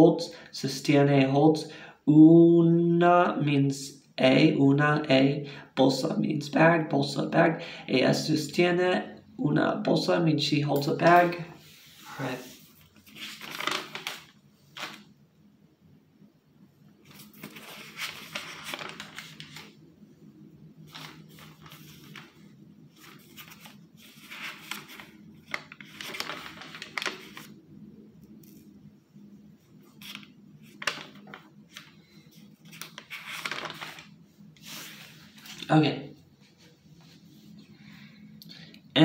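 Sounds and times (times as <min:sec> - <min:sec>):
notebook pages rustling: 0:11.3 - 0:15.1, 0:17.0 - 0:19.9, 0:20.8 - 0:27.6, 0:29.7 - 0:35.7.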